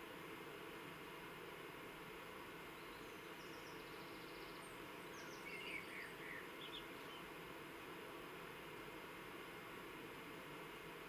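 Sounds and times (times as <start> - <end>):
steady background hiss: 0.0 - 11.0
songbird singing: 2.7 - 7.3.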